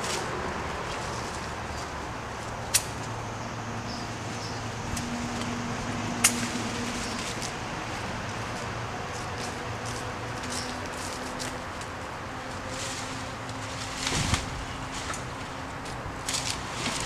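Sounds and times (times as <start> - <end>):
low outdoor hum: 0.0 - 17.0
brush snapping: 2.5 - 3.2, 6.2 - 7.5, 13.1 - 17.0.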